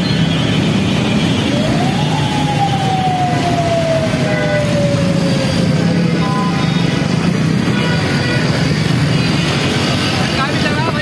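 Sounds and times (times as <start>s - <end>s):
road traffic din: 0.0s - 11.0s.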